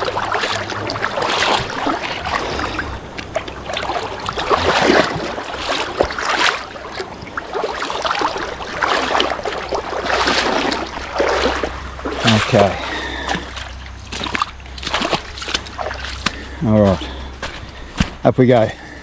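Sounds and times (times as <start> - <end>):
water splashing around wading legs: 0.0 - 18.2.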